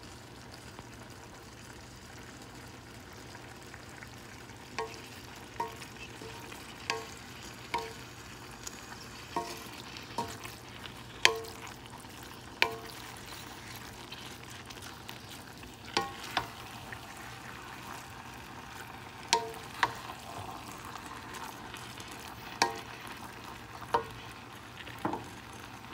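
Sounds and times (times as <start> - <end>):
meat and pasta sizzling in a pan: 0.0 - 25.9
spoon knocking against a pan: 4.8 - 7.2, 7.8 - 8.1, 9.3 - 10.6, 11.2 - 11.7, 12.6 - 13.4, 16.0 - 16.6, 19.3 - 20.0, 22.6 - 22.9, 25.0 - 25.3.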